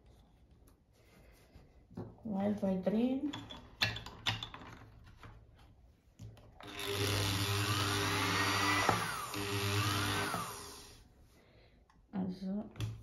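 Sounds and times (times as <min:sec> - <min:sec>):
electric motor humming and whining: 0:06.6 - 0:11.0.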